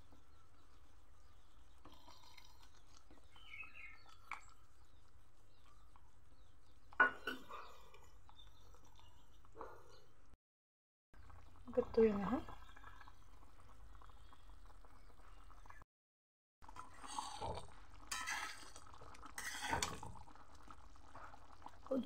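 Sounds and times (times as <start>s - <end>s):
liquid simmering: 0.0s - 10.4s, 11.2s - 15.8s, 16.6s - 22.0s
wooden spatula scraping metal pan: 19.4s - 20.0s.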